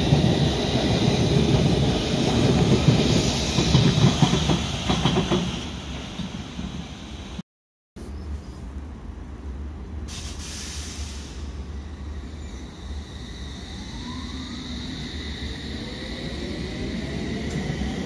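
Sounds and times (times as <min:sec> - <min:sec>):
air hiss: 0:10.1 - 0:11.7
train pulling away: 0:10.1 - 0:18.0.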